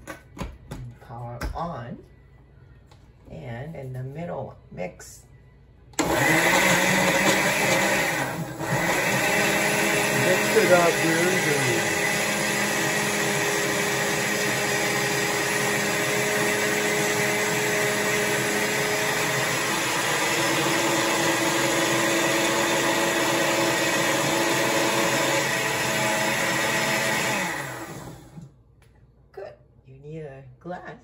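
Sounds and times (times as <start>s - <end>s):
blender running: 6.0s - 28.5s.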